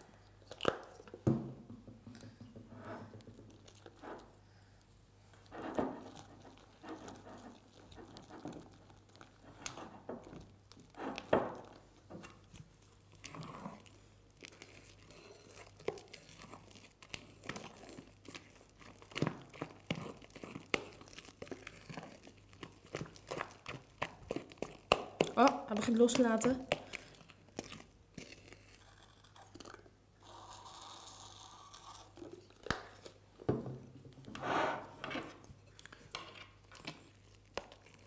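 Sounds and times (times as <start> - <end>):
slime squelching and crackling: 3.2 - 30.0, 35.5 - 38.0
spatula stirring in glass bowl: 5.4 - 10.4, 13.5 - 27.3.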